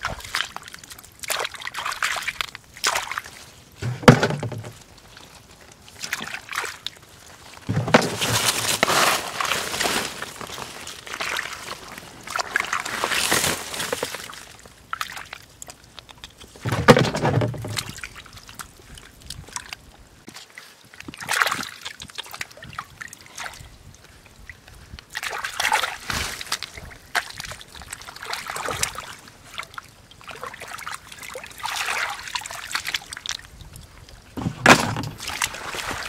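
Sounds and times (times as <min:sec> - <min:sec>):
hands splashing in muddy water: 0:34.4 - 0:36.0.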